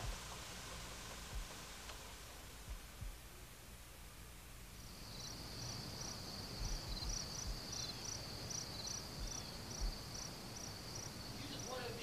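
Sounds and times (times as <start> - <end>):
dull low thumps: 2.6 - 3.4, 6.5 - 7.9, 9.2 - 10.1
crickets chirping: 4.7 - 12.0.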